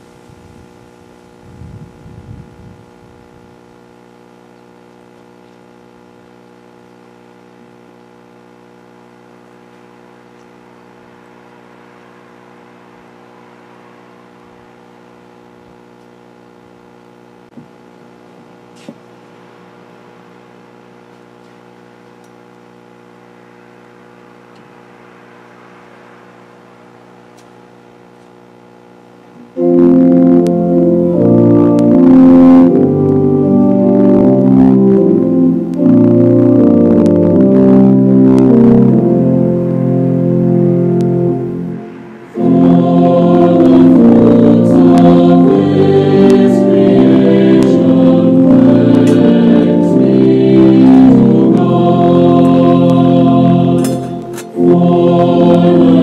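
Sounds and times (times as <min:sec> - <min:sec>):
steady hum of held tones: 0:00.0 - 0:56.0
organ music: 0:29.6 - 0:56.0.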